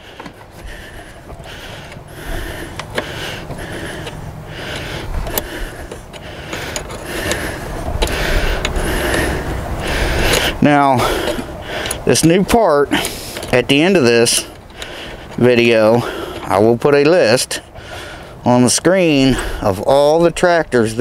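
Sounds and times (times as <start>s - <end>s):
hand scraping among battery cables: 0.0s - 21.0s.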